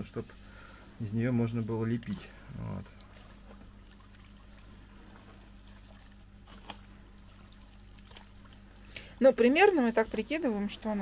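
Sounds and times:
wet clay sloshing and squelching: 0:00.0 - 0:11.0
small wet clicks: 0:01.8 - 0:09.8.

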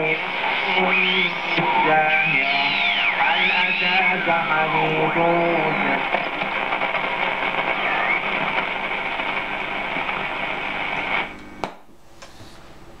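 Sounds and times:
radio static hiss: 0:00.0 - 0:11.6
radio click: 0:00.0 - 0:11.8
rising tuning whistle: 0:00.6 - 0:06.0.

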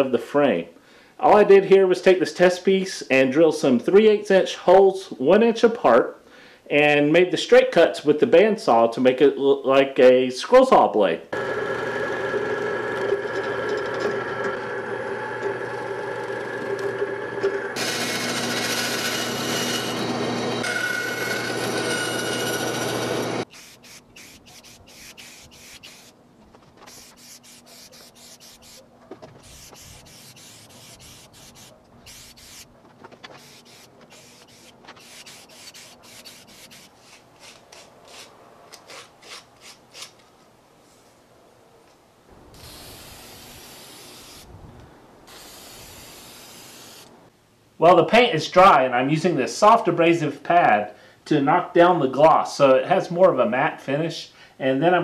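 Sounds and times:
drill press motor: 0:11.4 - 0:23.4
drill bit cutting wood: 0:11.4 - 0:26.1, 0:26.9 - 0:28.8, 0:29.4 - 0:32.6, 0:33.4 - 0:36.9
paint rubbing on wood: 0:26.8 - 0:32.7, 0:33.3 - 0:37.1.

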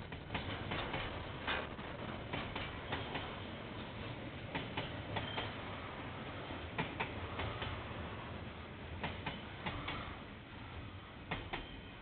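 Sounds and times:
train wheels clicking over rail joints: 0:00.0 - 0:05.6, 0:06.7 - 0:07.8, 0:09.0 - 0:10.1, 0:11.2 - 0:11.9
train low rumble: 0:00.0 - 0:12.0.

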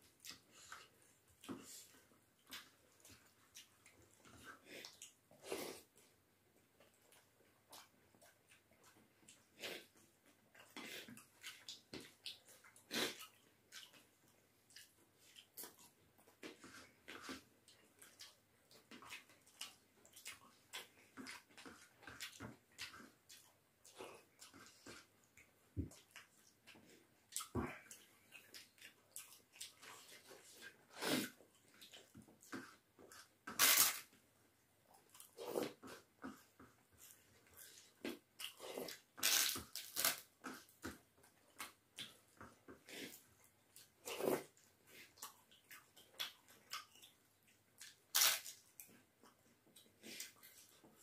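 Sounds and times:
wet chewing and lip smacking: 0:06.8 - 0:33.4, 0:34.9 - 0:51.0
crunching and chewing papad: 0:35.0 - 0:51.0.

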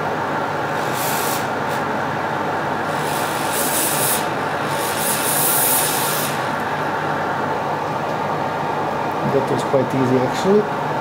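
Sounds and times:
hot air station hissing: 0:00.6 - 0:02.0, 0:02.7 - 0:07.1.

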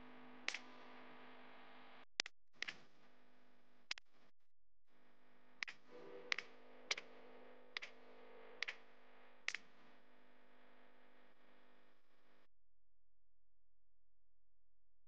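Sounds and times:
faint steady hum: 0:00.0 - 0:02.0, 0:05.0 - 0:12.5.

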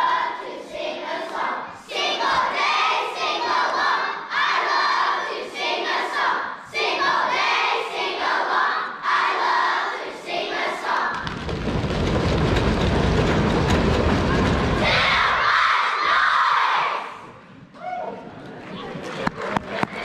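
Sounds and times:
children's choir singing loudly: 0:00.0 - 0:11.3, 0:13.6 - 0:17.4
low rumbling noise: 0:11.2 - 0:15.8.

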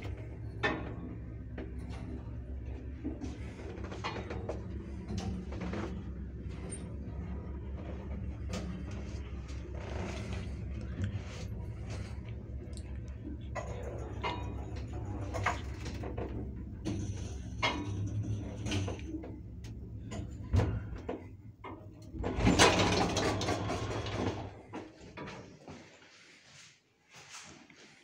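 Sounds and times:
elevator motor humming: 0:00.0 - 0:25.2
sliding doors rattling open: 0:13.4 - 0:25.2
elevator stopping with a thud: 0:22.2 - 0:24.5.

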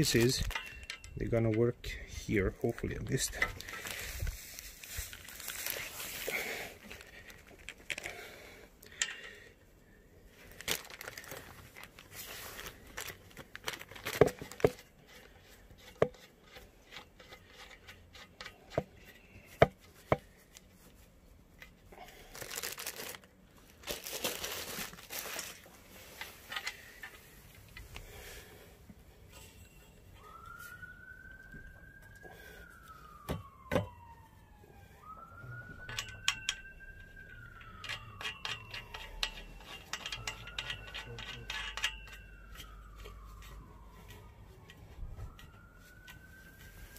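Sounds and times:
metal tubes clicking and knocking: 0:00.0 - 0:02.1, 0:08.8 - 0:09.5, 0:14.1 - 0:20.3, 0:35.8 - 0:43.5
plastic bag crinkling: 0:03.2 - 0:08.3, 0:10.4 - 0:14.9, 0:22.0 - 0:26.0.

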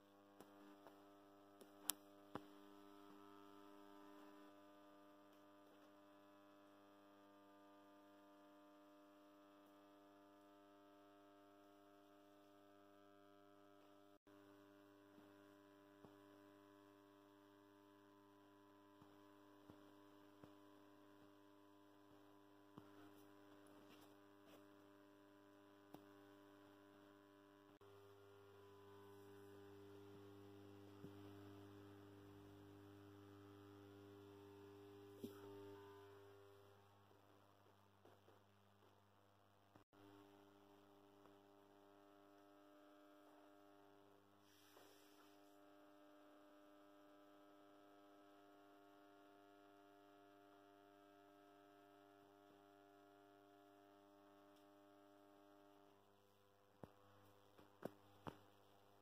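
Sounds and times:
streetlight mains hum: 0:00.0 - 0:38.4.

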